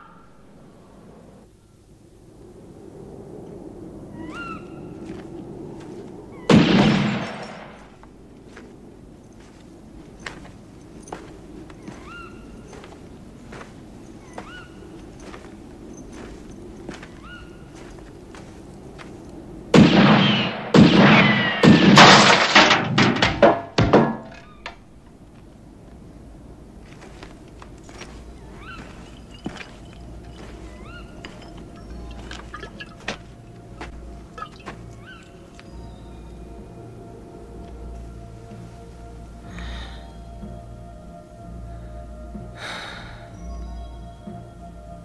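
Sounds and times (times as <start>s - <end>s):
loud crashing impacts: 19.8s - 24.4s
steady low drone: 24.3s - 45.0s.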